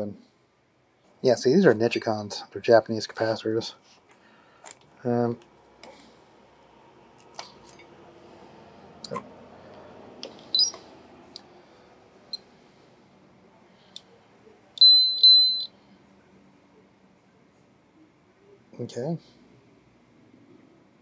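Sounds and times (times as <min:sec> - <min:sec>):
high electronic beeps: 0:10.5 - 0:10.8, 0:14.8 - 0:15.7.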